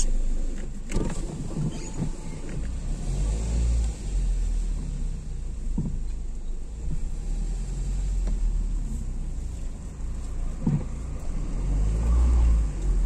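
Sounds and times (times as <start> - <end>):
car interior rumble: 0.0 - 13.0
soft knocks: 10.6 - 11.0.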